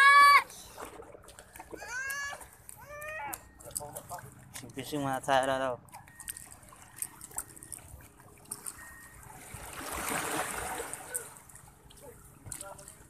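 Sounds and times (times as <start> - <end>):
waves lapping against seawall: 0.0 - 13.0
water surging over edge: 7.2 - 13.0.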